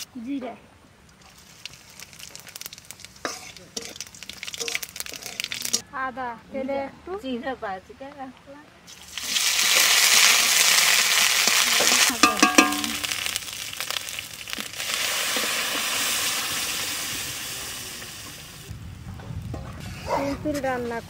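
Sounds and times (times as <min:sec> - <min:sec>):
lentils poured into hot oil: 0:01.2 - 0:05.8, 0:08.9 - 0:18.6
paste sizzling in hot oil: 0:01.2 - 0:05.8, 0:08.9 - 0:18.6
metal spatula clanking on pan: 0:11.8 - 0:13.3.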